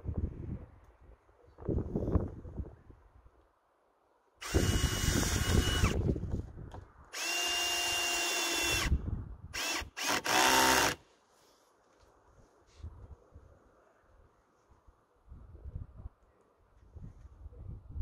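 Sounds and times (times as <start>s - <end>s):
cordless drill driving screws: 4.4s - 6.0s, 7.2s - 9.0s, 9.6s - 11.0s.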